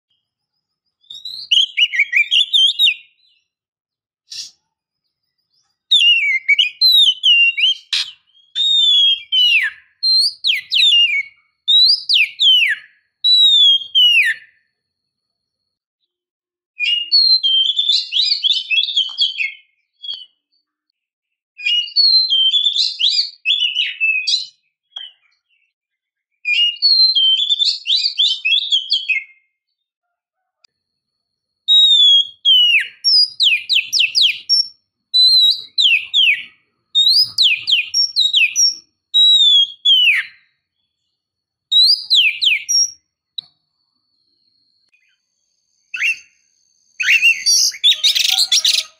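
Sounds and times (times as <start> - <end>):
bird singing whistles and chatter: 0.1 - 3.5, 4.3 - 14.6, 16.8 - 20.5, 21.6 - 25.8, 26.4 - 29.6, 31.7 - 40.8, 41.7 - 43.1, 45.0 - 48.9.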